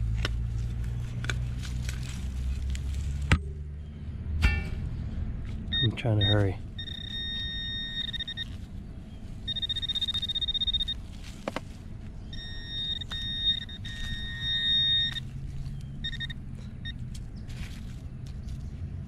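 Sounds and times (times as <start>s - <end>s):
pinpointer high alert tone: 5.7s - 8.6s, 9.5s - 11.0s, 12.3s - 15.3s, 16.0s - 17.0s.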